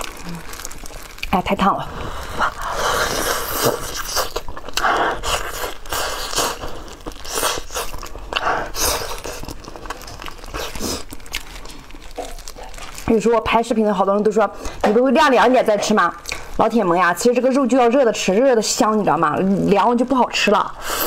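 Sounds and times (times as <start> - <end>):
close-up wet chewing: 0.0 - 13.7.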